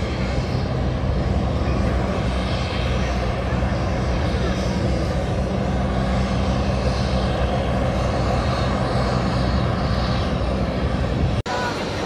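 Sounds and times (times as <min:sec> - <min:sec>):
aircraft engine drone: 0:00.0 - 0:12.0.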